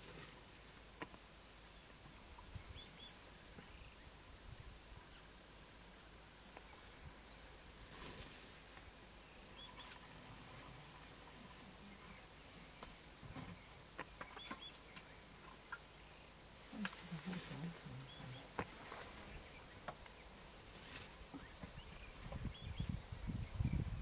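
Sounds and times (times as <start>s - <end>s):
faint outdoor ambience: 0.0s - 24.0s
faint steady hiss: 0.0s - 24.0s
bird chirps: 9.3s - 10.2s, 11.0s - 20.4s.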